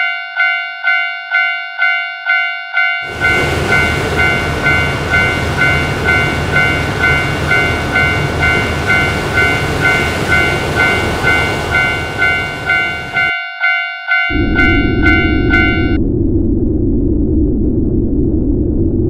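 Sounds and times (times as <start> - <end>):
level-crossing warning bell ringing: 0.0 - 16.0
train running past: 3.0 - 13.4, 14.1 - 16.0.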